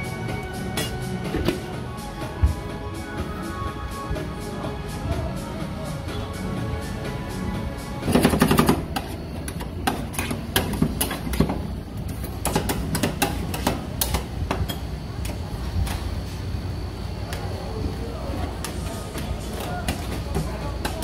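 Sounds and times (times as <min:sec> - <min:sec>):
background music: 0:00.0 - 0:11.2.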